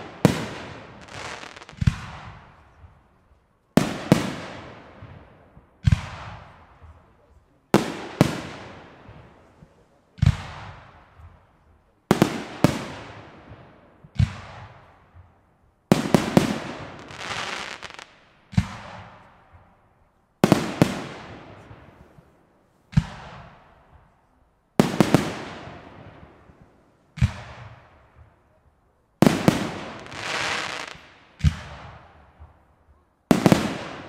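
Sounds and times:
firework bangs with rolling echo: 0:00.0 - 0:03.1, 0:03.8 - 0:19.8, 0:20.4 - 0:24.2, 0:24.8 - 0:28.6, 0:29.2 - 0:34.0.

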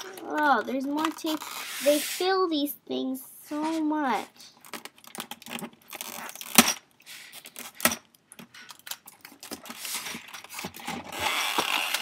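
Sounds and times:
tape rustling and scratching: 0:00.0 - 0:02.4, 0:04.6 - 0:12.0.

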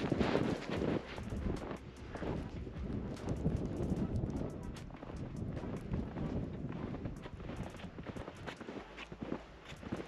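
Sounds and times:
footsteps crunching in snow: 0:00.0 - 0:03.4, 0:05.6 - 0:10.0
wind buffeting microphone: 0:00.0 - 0:10.0.

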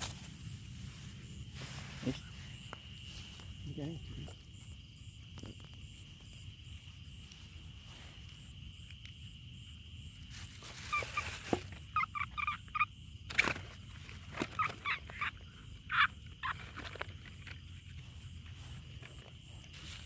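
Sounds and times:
frog croaking: 0:10.9 - 0:13.0, 0:14.2 - 0:18.2.

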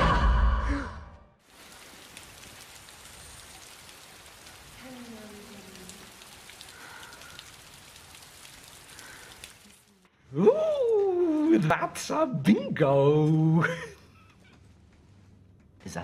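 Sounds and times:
steady rain falling: 0:01.4 - 0:14.2.

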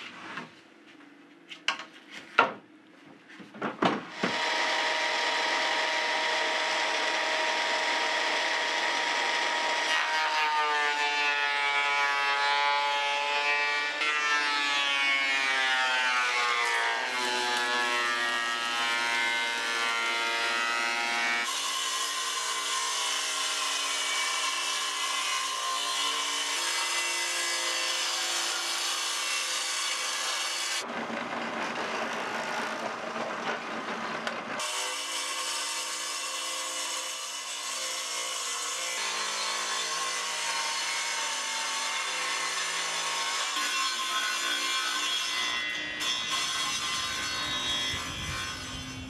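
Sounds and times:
power tools running: 0:04.1 - 0:10.1.

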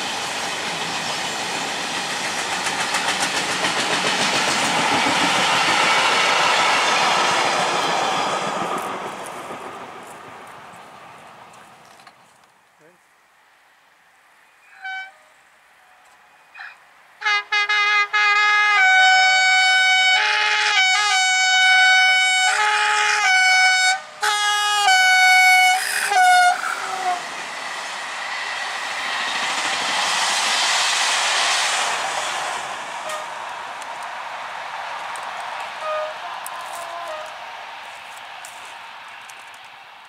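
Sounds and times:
train running past: 0:00.0 - 0:12.2, 0:15.8 - 0:40.0
locomotive horn blasts: 0:14.7 - 0:15.3, 0:17.2 - 0:27.2, 0:33.0 - 0:33.4, 0:35.8 - 0:37.4.

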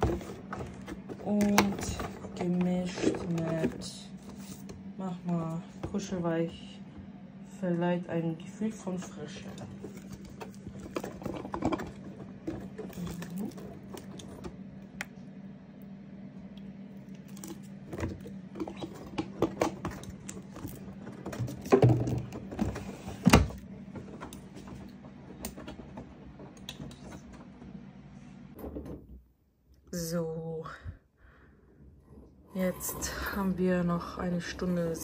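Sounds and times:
low hum: 0:00.0 - 0:28.6.

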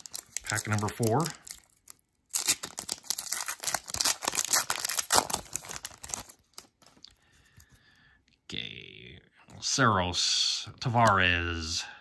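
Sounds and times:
wrapper tearing and crinkling: 0:00.0 - 0:07.1.

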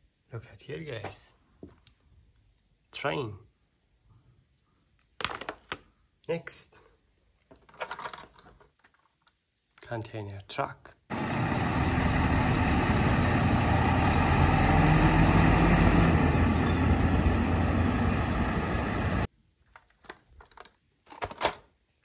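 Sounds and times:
diesel truck engine running: 0:11.1 - 0:19.3.

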